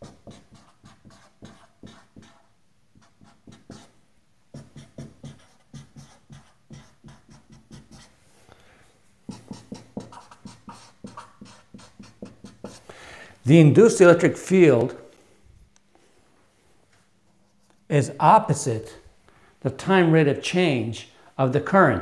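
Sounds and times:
marker writing on whiteboard: 0:00.0 - 0:08.2, 0:09.2 - 0:12.9.

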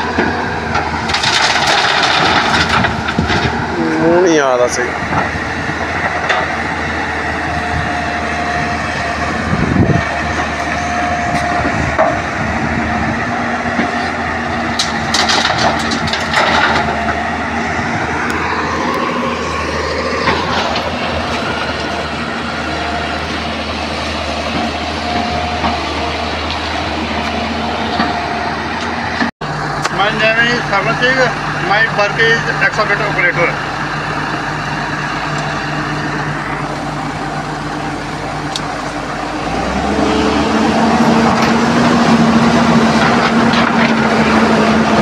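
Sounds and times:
diesel engine running: 0:00.0 - 0:45.0
hydraulic whine: 0:00.0 - 0:45.0
bucket and rocks clanking: 0:00.2 - 0:03.6, 0:14.8 - 0:17.1.

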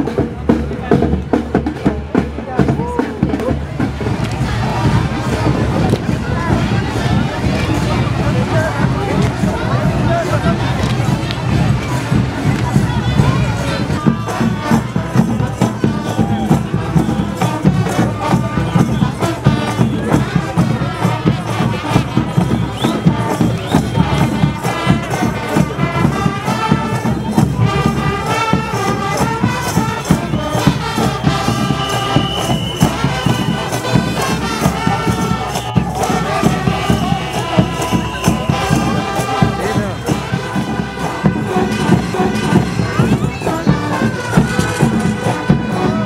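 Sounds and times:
drum beat: 0:00.0 - 0:46.0
horns: 0:00.0 - 0:46.0
street band playing: 0:00.0 - 0:46.0
voices: 0:00.0 - 0:46.0
tambourine-like percussion: 0:11.5 - 0:46.0.

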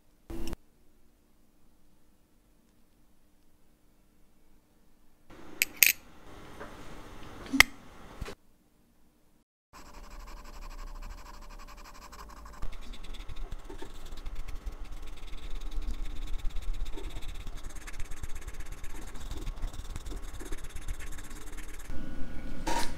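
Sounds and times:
cotton swab scrubbing metal: 0:11.6 - 0:21.9.

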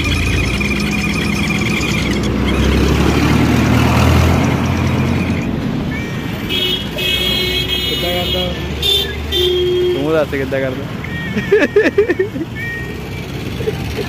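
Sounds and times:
vehicle horns: 0:00.0 - 0:10.8
vehicle engine passing: 0:00.0 - 0:14.0.

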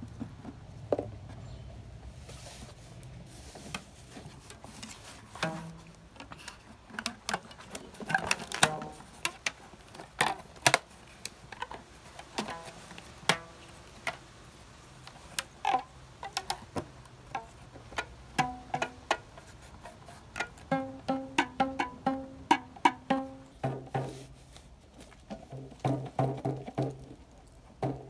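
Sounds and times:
rubber band strings twanging: 0:05.3 - 0:06.0, 0:20.4 - 0:24.3.

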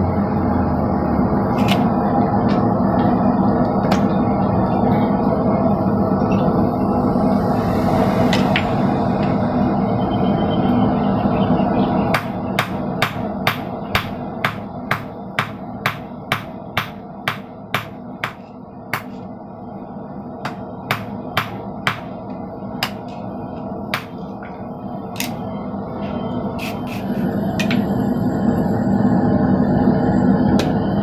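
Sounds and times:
hammer striking steel on anvil: 0:12.1 - 0:19.1, 0:20.4 - 0:22.2, 0:23.9 - 0:24.2.

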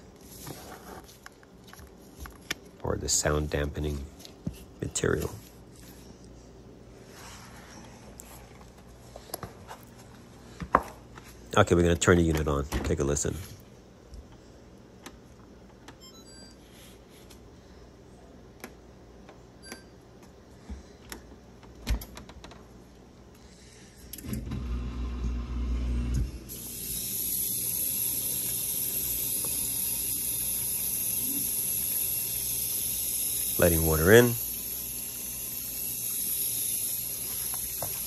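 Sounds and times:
low motor hum: 0:24.4 - 0:26.5
water flowing in hiss: 0:26.5 - 0:38.0.

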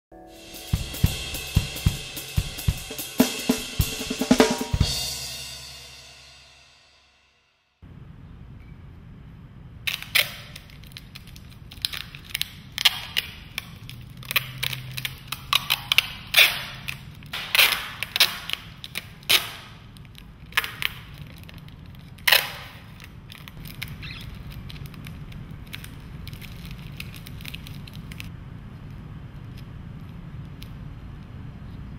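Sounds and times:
plastic sheeting crinkling: 0:16.2 - 0:28.3.

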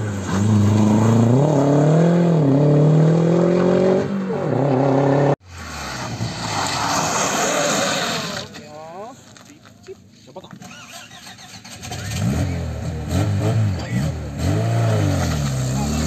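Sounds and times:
rally car engine revving: 0:00.0 - 0:08.6, 0:10.6 - 0:16.0
rally car passing: 0:00.0 - 0:08.8.

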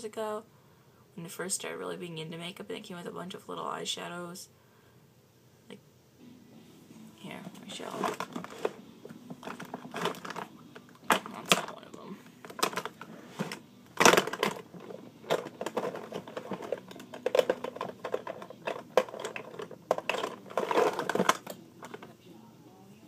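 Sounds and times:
handling clicks and knocks: 0:07.5 - 0:22.1.

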